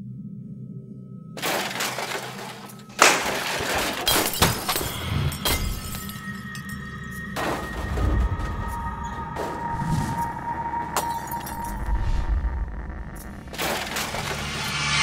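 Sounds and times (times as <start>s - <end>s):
low droning music: 0.0s - 15.0s
smashing and clattering: 1.4s - 9.7s, 13.5s - 14.8s
loud crash: 13.6s - 15.0s.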